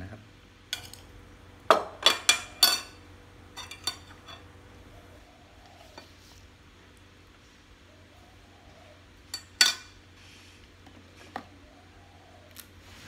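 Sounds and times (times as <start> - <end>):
metal spoon clinking on ceramic bowl: 0.8 - 1.0, 2.0 - 3.0, 3.6 - 4.5, 9.3 - 9.9.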